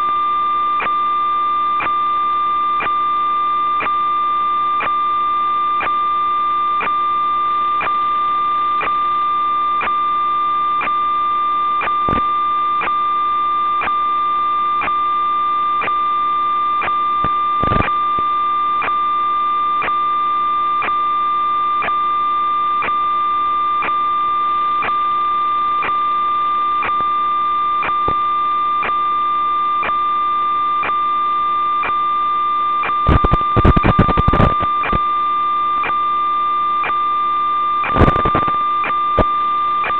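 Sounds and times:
static crackle: 0:11.7 - 0:13.1, 0:16.6 - 0:19.0, 0:26.7 - 0:29.0, 0:32.7 - 0:36.1, 0:36.7 - 0:39.9
steady electronic tone: 0:32.7 - 0:35.1, 0:37.7 - 0:39.9.

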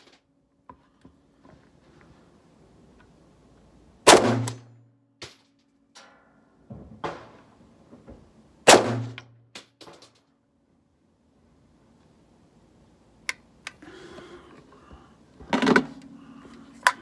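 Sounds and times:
rifle shots: 0:04.0 - 0:04.8, 0:08.6 - 0:09.3.

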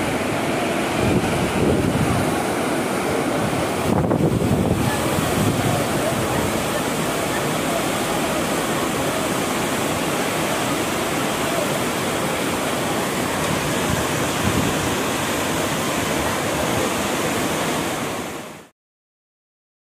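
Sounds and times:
river water rushing over weir: 0:00.0 - 0:18.7.

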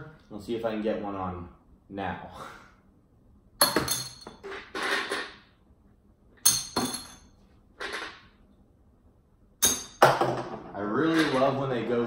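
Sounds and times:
rings clinking on bottles: 0:03.6 - 0:04.4, 0:06.4 - 0:07.4, 0:09.6 - 0:10.1.

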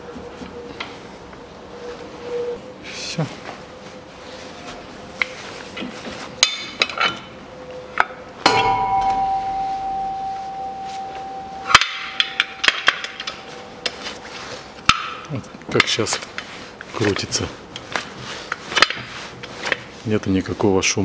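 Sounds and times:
metallic ringing tone: 0:08.4 - 0:15.4
steel clanks and knocks: 0:08.4 - 0:15.9.

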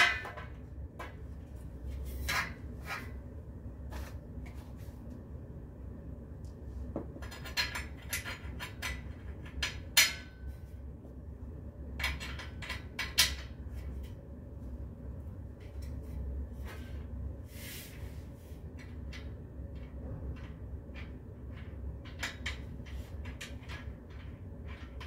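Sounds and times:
metal bed-frame parts clinking: 0:00.0 - 0:00.6.

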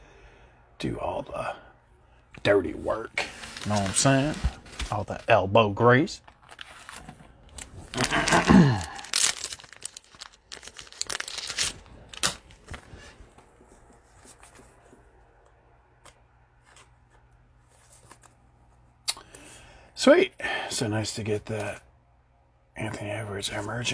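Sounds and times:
cards and packaging rustling: 0:03.1 - 0:05.4, 0:06.1 - 0:15.2, 0:16.0 - 0:18.4.

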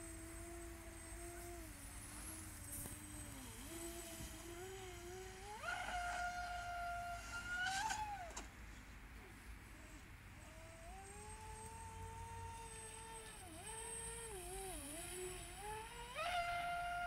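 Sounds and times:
model boat motor whining: 0:00.0 - 0:08.5, 0:09.6 - 0:17.0.

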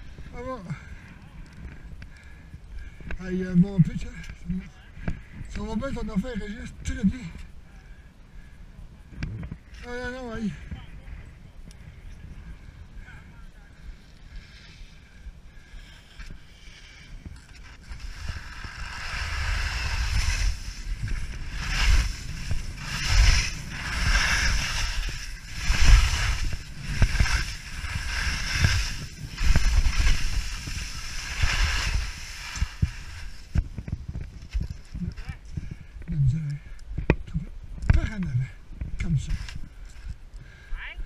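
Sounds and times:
wind buffeting microphone: 0:08.1 - 0:40.4
skis scraping through snow: 0:15.7 - 0:35.7.

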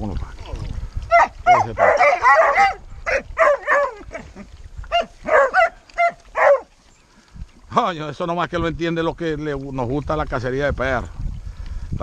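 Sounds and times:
hounds yelping and barking: 0:01.1 - 0:06.9.

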